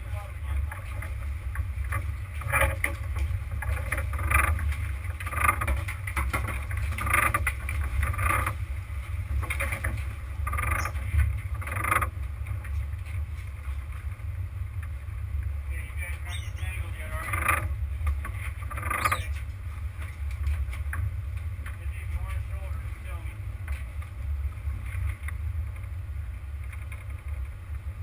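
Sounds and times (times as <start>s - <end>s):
boat engine low rumble: 0.0s - 28.0s.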